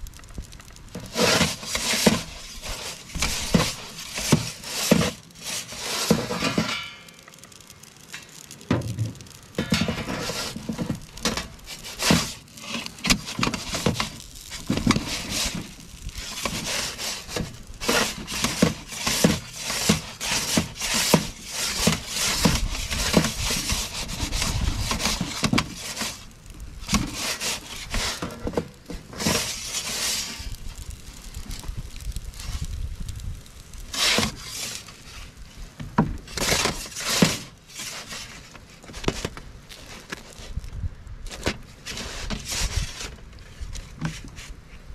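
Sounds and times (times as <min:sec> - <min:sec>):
metal peel scraping stone: 0:01.0 - 0:07.4, 0:09.5 - 0:31.0, 0:33.8 - 0:35.3.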